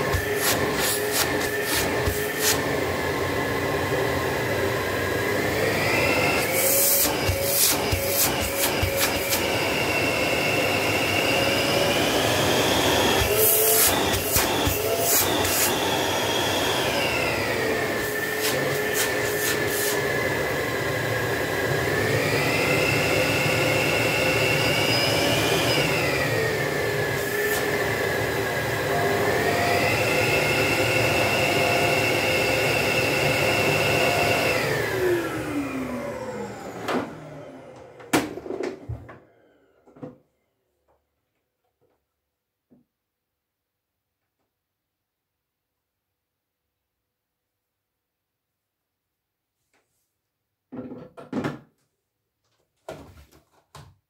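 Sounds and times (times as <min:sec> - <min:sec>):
vacuum cleaner motor whine: 0:00.0 - 0:40.6.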